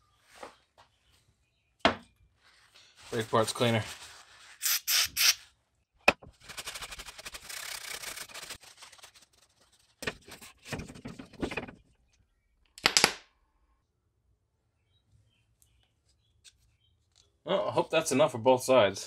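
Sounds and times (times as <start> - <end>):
paper towel rubbing and rustling: 2.5 - 4.6, 6.4 - 10.4.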